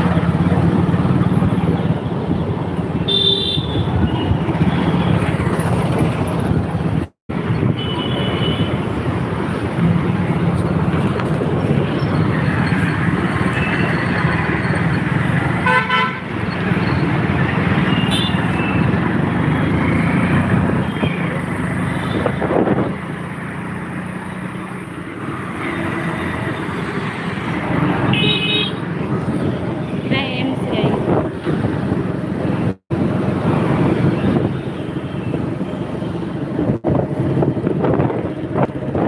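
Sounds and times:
road and wind noise: 0:00.0 - 0:39.0
vehicle horns honking: 0:03.1 - 0:05.1, 0:07.6 - 0:08.8, 0:15.6 - 0:16.3, 0:17.9 - 0:18.6, 0:28.1 - 0:28.8
motorcycle engine: 0:08.0 - 0:30.6.

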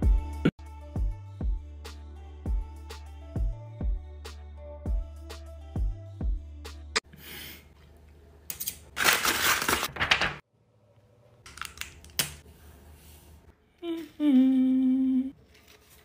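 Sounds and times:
paper crinkling and rustling: 0:09.0 - 0:10.4, 0:15.4 - 0:16.0
person humming: 0:13.7 - 0:15.4.

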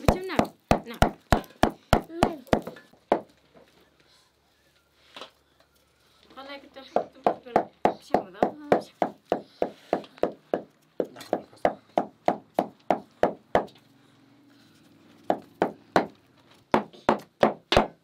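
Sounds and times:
knife chopping on wooden board: 0:16.8 - 0:18.0.

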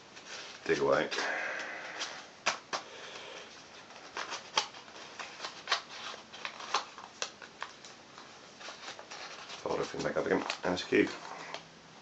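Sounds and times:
paper rustling and crinkling: 0:03.5 - 0:11.6
sharp paper crackles: 0:03.8 - 0:08.0, 0:08.6 - 0:11.6.

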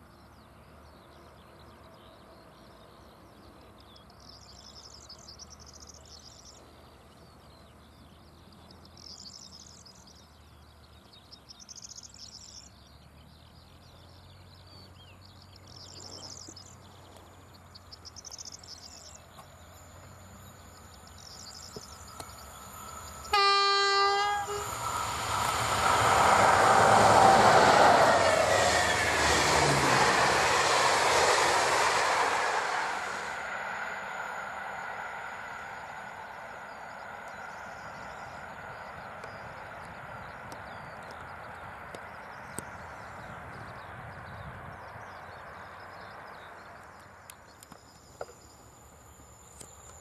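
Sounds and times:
train wheels rolling on rails: 0:15.8 - 0:43.7
train horn blast: 0:23.2 - 0:24.8.

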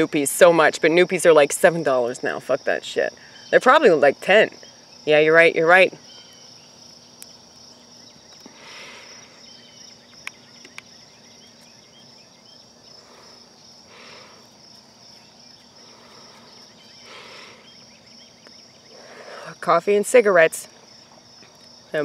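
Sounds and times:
crickets chirping: 0:00.0 - 0:22.0
soft exhales of smoke: 0:08.4 - 0:09.4.

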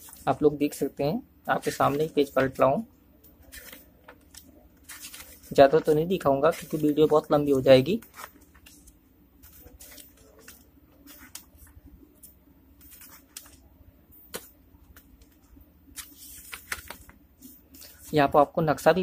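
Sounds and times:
book pages turning: 0:03.4 - 0:18.1.

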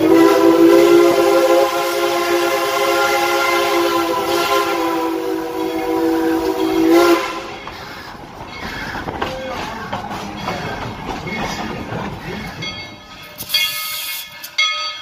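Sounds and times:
steam locomotive whistle: 0:00.0 - 0:07.7
train rumbling along: 0:00.0 - 0:15.0.

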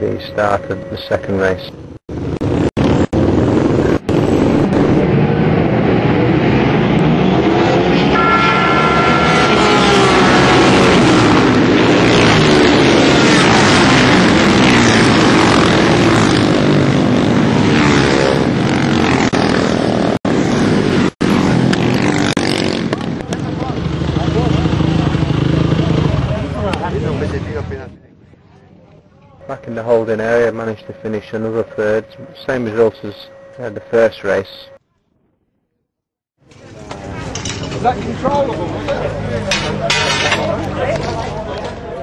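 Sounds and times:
racing motorcycles accelerating: 0:01.9 - 0:27.9.

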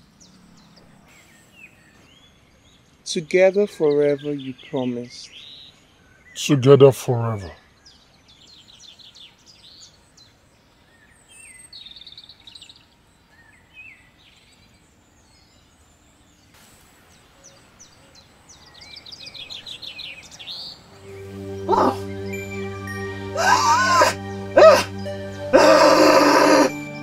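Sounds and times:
birds chirping and singing: 0:00.0 - 0:06.6, 0:07.4 - 0:16.5, 0:17.2 - 0:27.0
faint outdoor hiss: 0:00.0 - 0:27.0.

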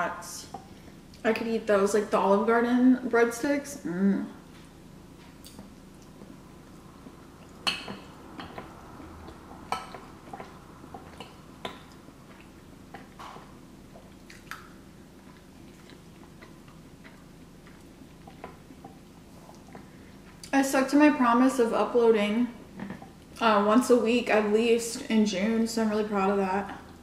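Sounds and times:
person chewing food: 0:04.5 - 0:20.5.

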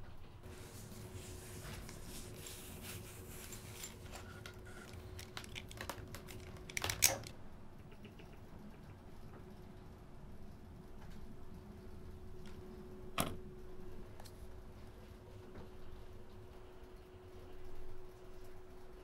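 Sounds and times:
fabric rustling: 0:00.4 - 0:05.2
plastic headphones clicking: 0:04.8 - 0:07.3.

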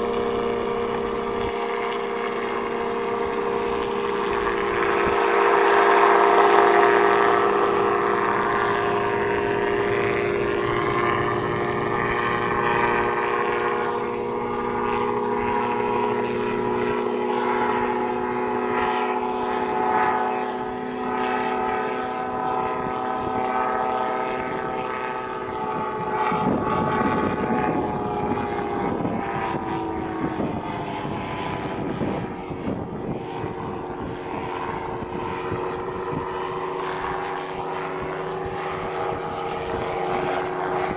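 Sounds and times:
gyroplane engine and propeller droning: 0:00.0 - 0:40.9.

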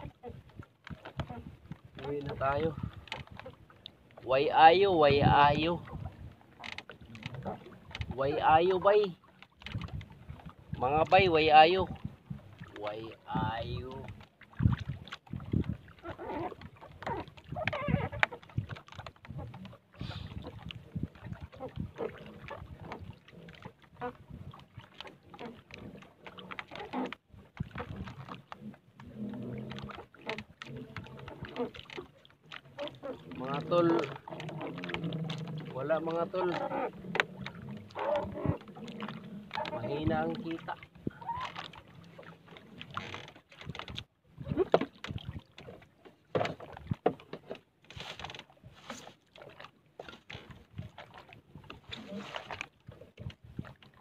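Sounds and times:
small splashes: 0:11.8 - 0:54.0
rustling of fishing line: 0:45.0 - 0:53.8
knocks from fishing gear in boat: 0:46.3 - 0:49.1.

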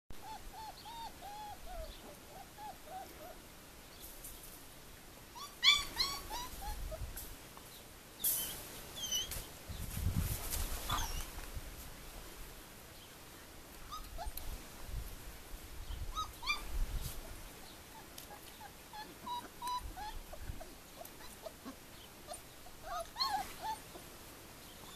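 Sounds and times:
puppies whimpering and yelping: 0:00.2 - 0:03.4, 0:05.3 - 0:07.2, 0:08.3 - 0:09.4, 0:10.8 - 0:11.3, 0:13.9 - 0:14.4, 0:16.1 - 0:16.8, 0:17.9 - 0:24.1.

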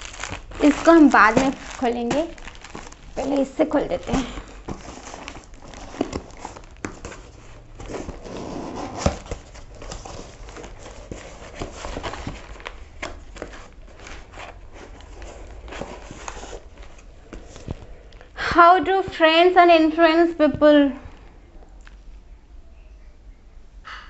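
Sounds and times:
cardboard box flaps rustling: 0:00.0 - 0:17.8.

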